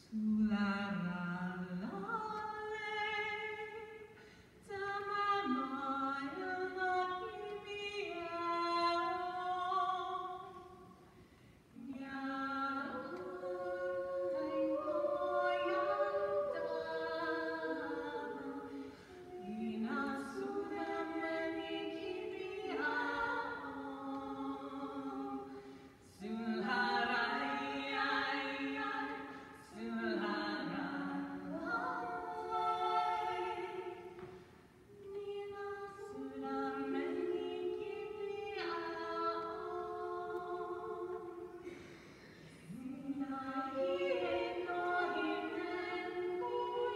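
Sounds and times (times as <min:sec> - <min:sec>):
mixed choir singing a cappella: 0:11.8 - 0:46.9.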